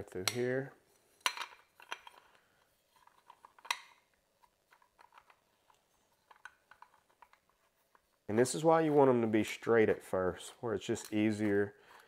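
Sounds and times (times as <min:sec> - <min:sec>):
small metallic clicks and taps: 0:03.0 - 0:07.5.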